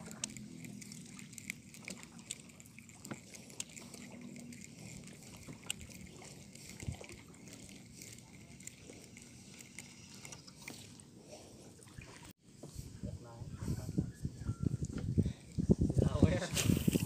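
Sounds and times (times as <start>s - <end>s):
water lapping against shore: 0.0s - 12.4s.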